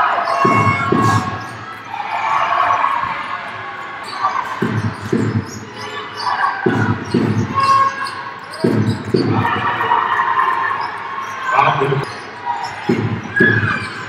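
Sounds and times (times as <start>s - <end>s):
voices: 0.0s - 14.0s
shoe squeaks: 0.2s - 1.8s, 4.0s - 9.6s, 10.7s - 14.0s
basketball bouncing on wooden court: 0.4s - 1.8s, 4.4s - 5.7s, 6.6s - 9.6s, 12.8s - 14.0s.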